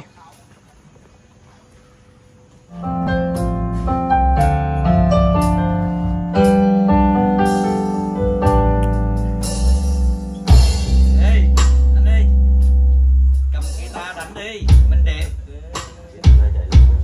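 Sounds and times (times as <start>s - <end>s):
electronic keyboard piano melody: 2.7s - 14.4s.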